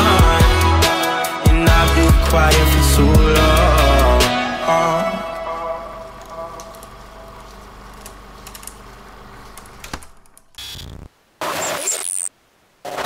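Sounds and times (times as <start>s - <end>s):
soundtrack music: 0.0s - 7.3s
harsh static bursts: 10.6s - 13.0s.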